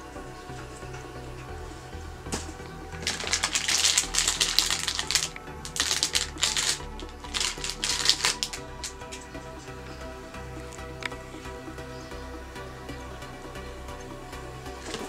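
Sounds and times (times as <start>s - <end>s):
background music: 0.0s - 15.0s
plastic packaging crinkling: 2.4s - 9.2s.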